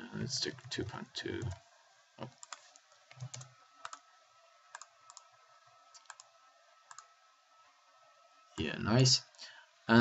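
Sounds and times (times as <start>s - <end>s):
computer mouse clicks: 2.2s - 4.0s, 4.7s - 5.3s, 6.0s - 6.3s, 6.9s - 7.1s.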